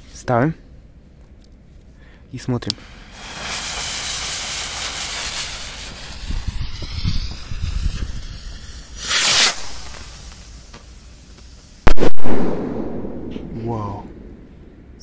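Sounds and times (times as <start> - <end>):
firework hissing and crackling: 2.7 - 12.8.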